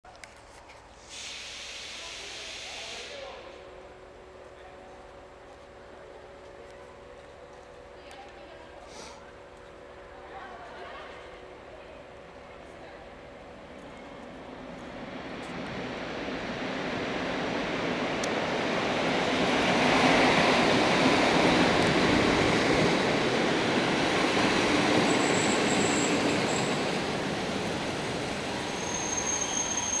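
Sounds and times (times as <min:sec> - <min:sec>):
train passing on rails: 0:00.3 - 0:30.0
brakes squealing: 0:28.6 - 0:30.0.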